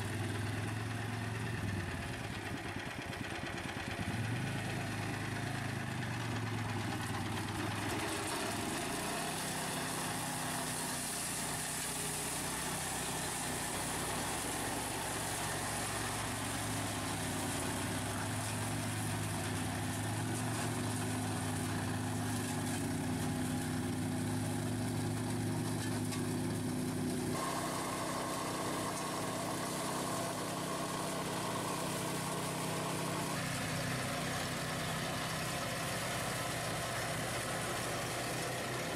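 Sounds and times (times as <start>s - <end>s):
mower petrol engine running: 0.0s - 38.9s
quad bike engine: 0.0s - 38.9s.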